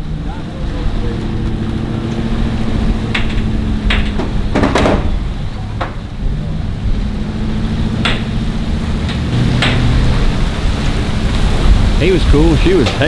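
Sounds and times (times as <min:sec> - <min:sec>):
engine hum: 0:00.0 - 0:13.0
wind rumbling on microphone: 0:00.0 - 0:13.0
sharp knocks: 0:03.0 - 0:05.2, 0:08.0 - 0:08.4, 0:09.0 - 0:10.1.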